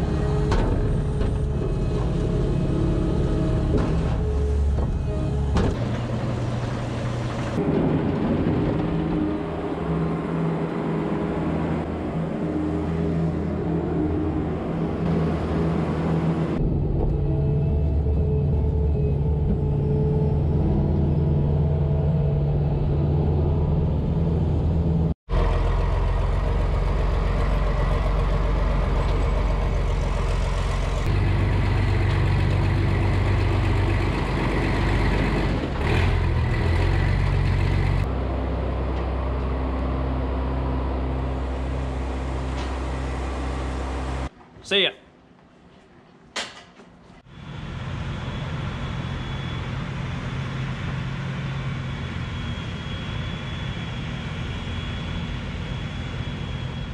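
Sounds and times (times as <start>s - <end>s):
tractor engine running: 0.0s - 12.7s, 23.1s - 44.2s
skid steer loader engine: 0.0s - 44.3s.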